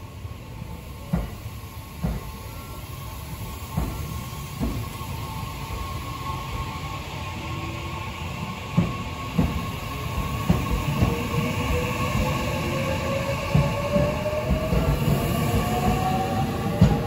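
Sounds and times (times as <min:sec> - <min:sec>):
train rumble: 0:00.0 - 0:17.0
train wheels thumping rail joints: 0:01.0 - 0:02.4, 0:03.7 - 0:05.0, 0:08.7 - 0:17.0.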